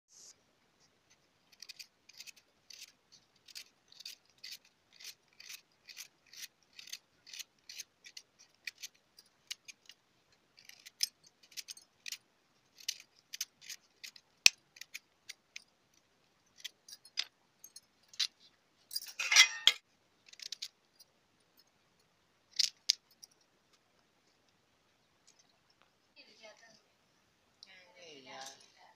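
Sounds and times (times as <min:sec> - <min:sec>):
knife scraping mango skin: 0:01.5 - 0:10.0.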